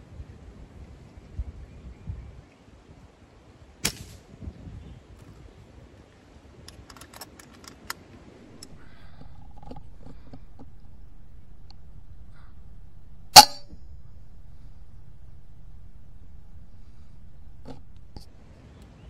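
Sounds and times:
air rifle shot: 3.8s - 4.2s, 13.3s - 15.2s.

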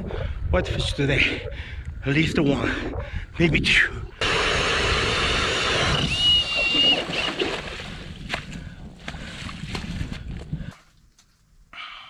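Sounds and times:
ice auger grinding through ice: 4.2s - 7.6s
slushy water sounds: 5.6s - 10.6s.

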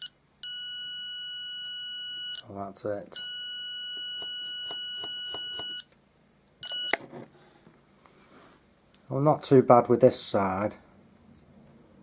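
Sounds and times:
stud detector beeping: 3.2s - 5.9s, 6.6s - 7.0s.

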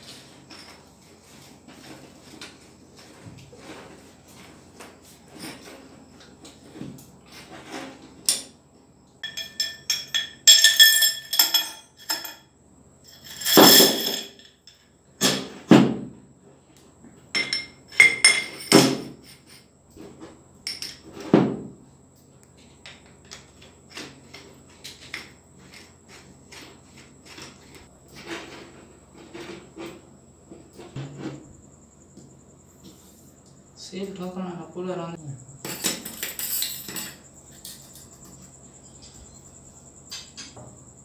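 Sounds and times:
metal parts clicking and knocking: 9.2s - 12.4s.

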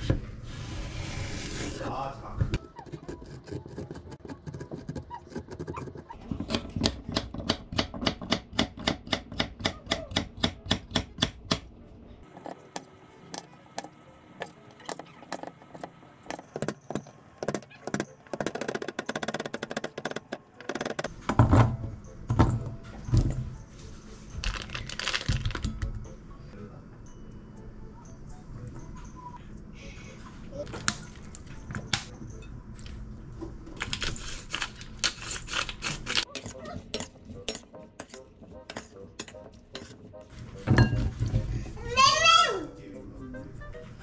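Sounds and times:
soft background music: 9.6s - 34.2s, 36.2s - 44.0s.

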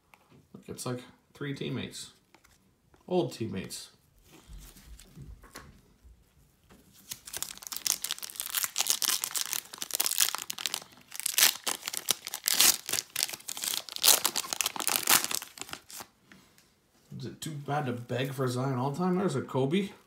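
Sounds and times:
plastic wrapper crinkling and tearing: 6.9s - 16.2s.

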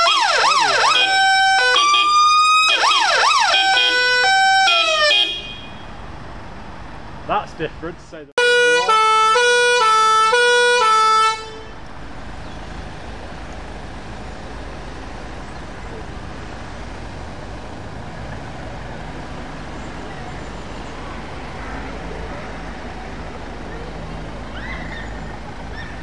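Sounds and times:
two-tone emergency horn: 0.0s - 5.8s, 8.4s - 11.8s
van engine rumbling: 0.0s - 26.0s.

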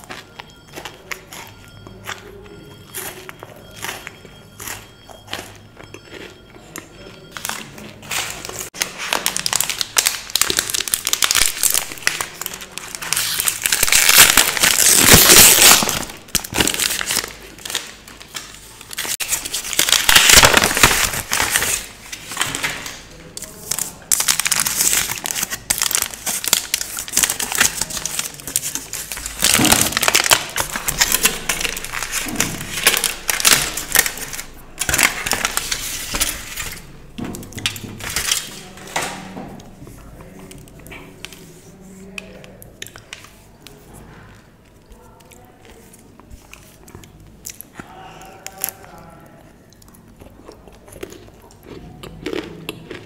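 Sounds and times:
wrapper foil tearing and crinkling: 7.5s - 36.9s, 37.6s - 39.2s.

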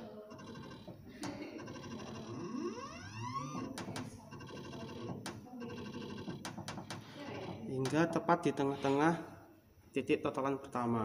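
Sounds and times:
sharp clicks: 3.6s - 7.2s.

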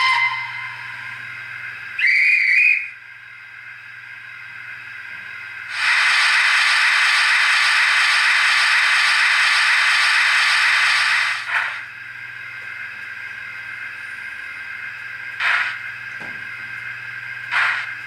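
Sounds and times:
steam whistle blast: 0.0s - 1.2s, 2.0s - 3.0s, 5.7s - 7.8s.

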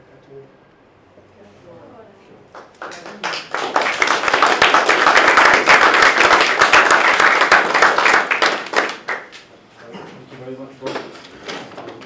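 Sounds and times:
audience applause: 2.6s - 9.4s.

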